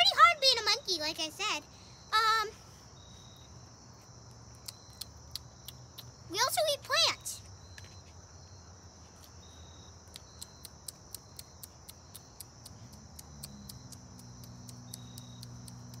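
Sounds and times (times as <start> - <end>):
insect trilling: 9.2 - 16.0.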